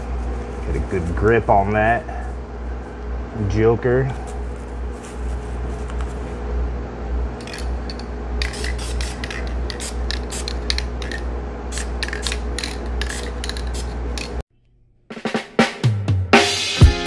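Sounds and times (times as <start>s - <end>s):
aerosol spray can bursts: 8.4s - 10.6s.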